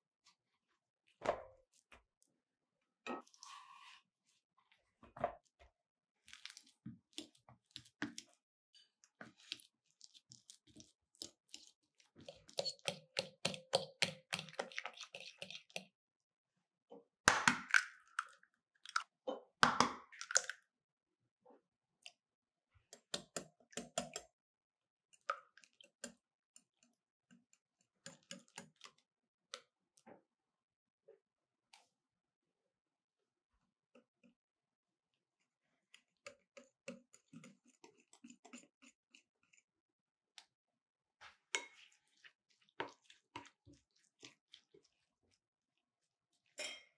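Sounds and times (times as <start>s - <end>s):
batter mixing clicks in bowl: 22.9s - 24.3s
bananas squishing in glass bowl: 41.3s - 45.4s.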